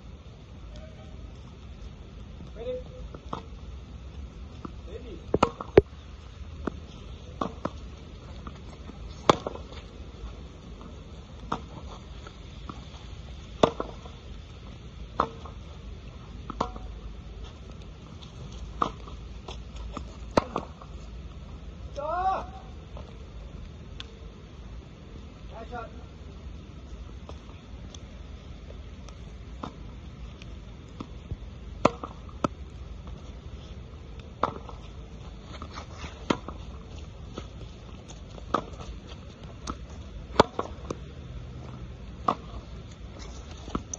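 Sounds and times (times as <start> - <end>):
background hiss: 0.0 - 43.9
low background noise: 0.0 - 43.9
tennis racket hitting ball: 5.3 - 5.8, 9.1 - 9.7, 13.6 - 14.1, 16.5 - 16.9, 20.3 - 20.8, 31.8 - 32.6, 34.4 - 34.8, 35.6 - 37.6, 39.6 - 41.0, 41.7 - 42.6
tennis ball smacks: 9.1 - 9.7, 39.6 - 41.0.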